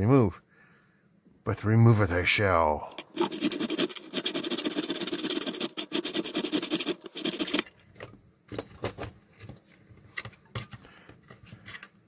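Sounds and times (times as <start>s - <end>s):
metal tool scraping metal: 3.0s - 7.6s.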